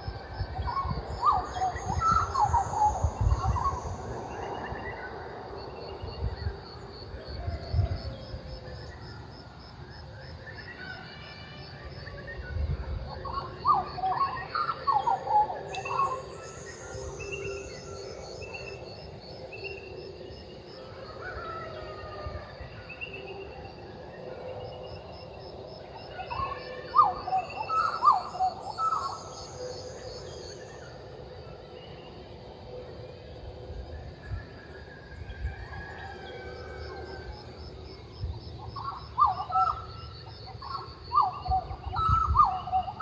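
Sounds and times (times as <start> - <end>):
butcherbirds singing: 26.1 - 32.2, 38.6 - 43.0.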